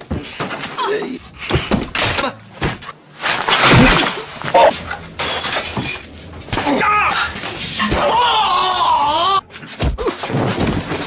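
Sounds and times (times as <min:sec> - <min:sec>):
crashes and smashing: 0:03.2 - 0:06.8
people shouting: 0:06.6 - 0:09.4.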